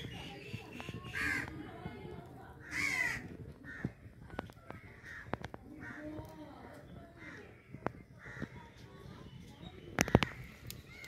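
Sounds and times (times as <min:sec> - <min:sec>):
fire popping and crackling: 0:00.0 - 0:11.0
crow cawing: 0:01.1 - 0:01.6, 0:02.6 - 0:04.0, 0:04.7 - 0:06.3, 0:07.2 - 0:08.8.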